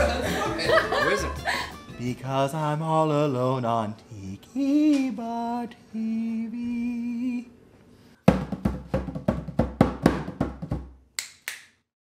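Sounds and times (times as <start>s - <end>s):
drum strikes with deep thump: 8.2s - 11.0s.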